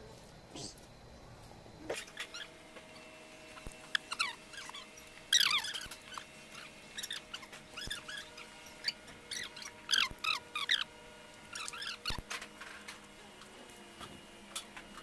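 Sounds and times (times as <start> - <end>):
bolts squeaking: 2.0 - 10.9.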